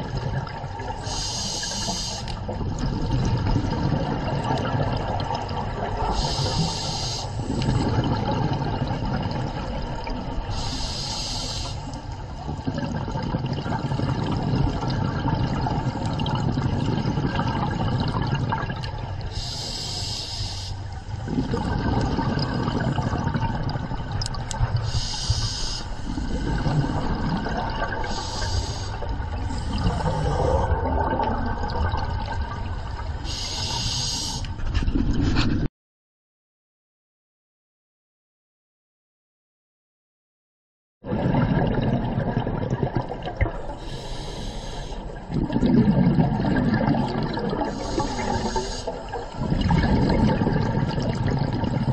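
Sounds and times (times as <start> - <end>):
bubbling rumble of exhaled air: 0.0 - 19.9, 20.8 - 35.7, 41.0 - 51.9
regulator breath hiss: 1.0 - 2.4, 6.2 - 7.5, 10.5 - 12.0, 19.3 - 20.9, 24.8 - 26.2, 28.1 - 30.2, 33.2 - 34.5, 43.8 - 45.0, 47.7 - 49.2.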